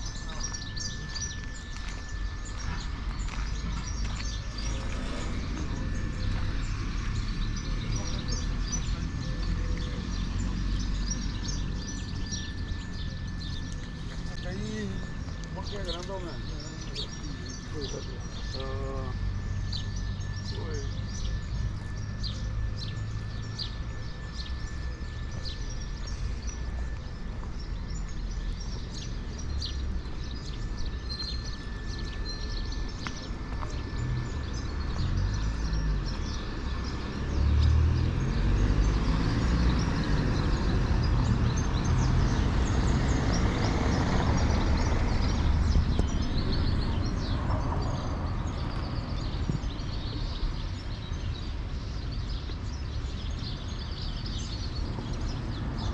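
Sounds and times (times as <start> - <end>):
small birds chirping: 0.0 - 55.9
vehicle passing: 4.3 - 11.1.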